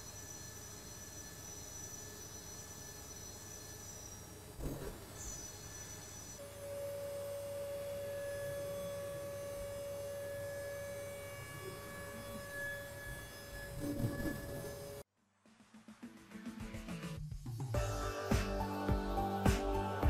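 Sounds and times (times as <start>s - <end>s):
milling spindle whining: 0.0s - 15.0s
scratchy metal cutting noise: 10.6s - 15.0s.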